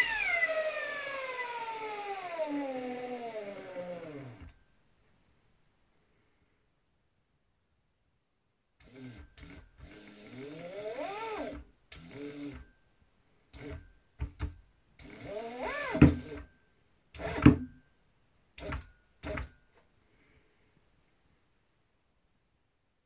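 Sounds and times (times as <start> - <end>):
electric motor whine: 0.0 - 4.5.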